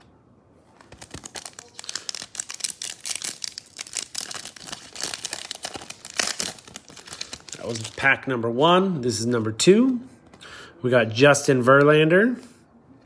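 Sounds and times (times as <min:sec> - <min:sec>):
foil wrapper crinkling: 0:00.8 - 0:08.2.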